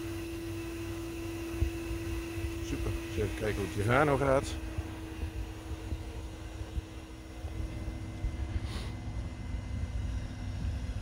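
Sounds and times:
pond vacuum motor humming: 0.0s - 11.0s
brief hiss: 8.6s - 9.0s.

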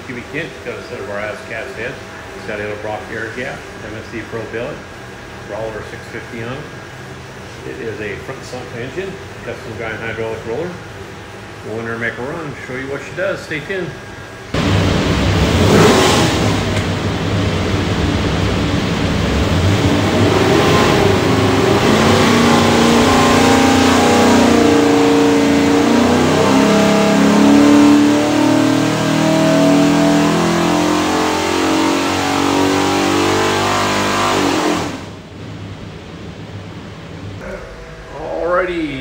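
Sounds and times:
engine revving at full throttle: 0.0s - 35.4s.

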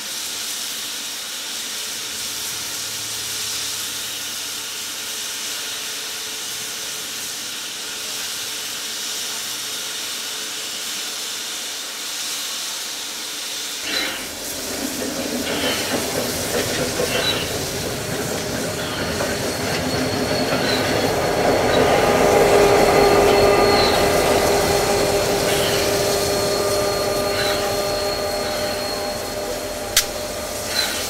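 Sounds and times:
steam hissing: 0.0s - 31.0s
high wheel squeals: 13.8s - 31.0s
diesel locomotive rumble: 13.9s - 31.0s.

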